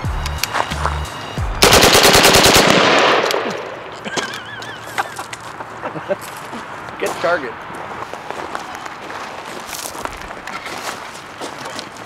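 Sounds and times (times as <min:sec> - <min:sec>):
airsoft shotgun full-auto burst: 0:01.6 - 0:03.5.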